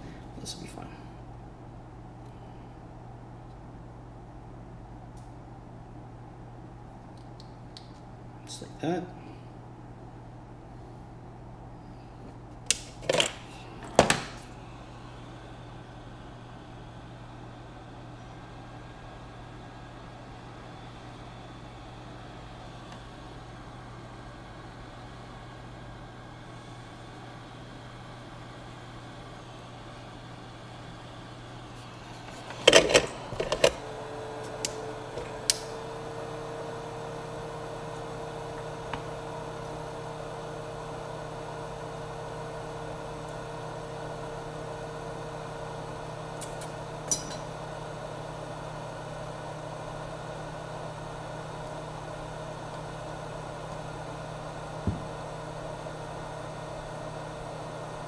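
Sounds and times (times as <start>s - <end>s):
heat gun blowing hum: 12.2s - 58.0s.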